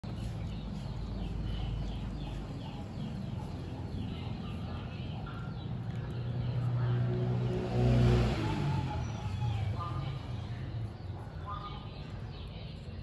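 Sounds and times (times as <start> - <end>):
bird chirping: 0.0 - 7.2.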